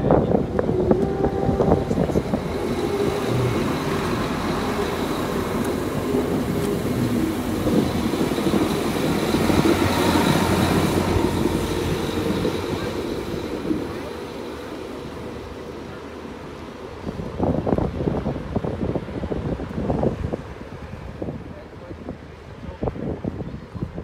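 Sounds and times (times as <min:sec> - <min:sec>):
train wheels rolling on rails: 0:00.0 - 0:21.2
diesel engine running: 0:00.8 - 0:15.5.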